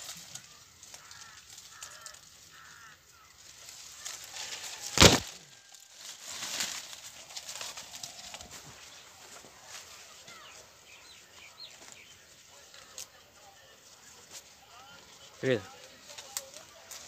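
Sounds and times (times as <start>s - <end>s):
leaves and twigs rustling: 0.0s - 17.0s
loud sharp thump: 5.0s - 5.3s.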